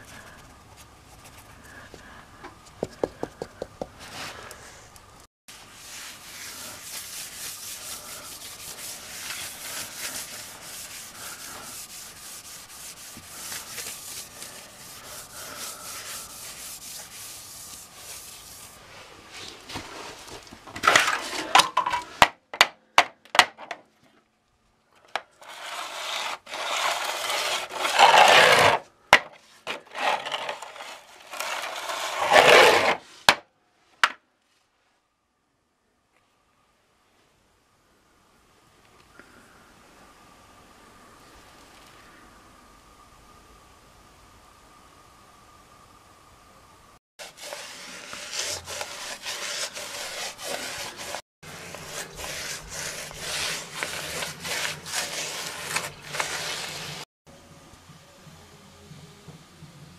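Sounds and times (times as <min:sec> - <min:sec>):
scraping strokes: 0:03.0 - 0:21.6, 0:25.3 - 0:33.3, 0:47.2 - 0:57.1
grout rubbing on tiles: 0:05.8 - 0:18.8, 0:25.4 - 0:28.8, 0:29.7 - 0:33.0, 0:47.2 - 0:57.1.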